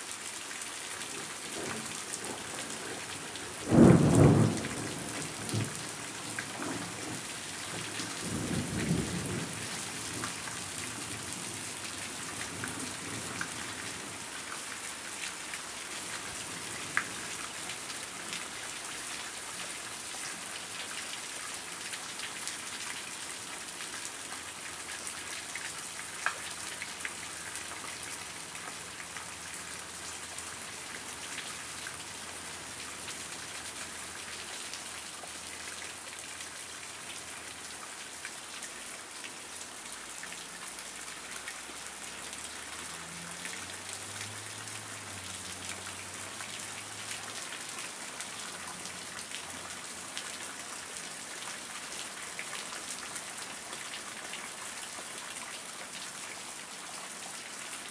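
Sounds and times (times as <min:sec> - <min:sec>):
heavy rain: 0:00.0 - 0:57.9
thunder: 0:03.7 - 0:04.9.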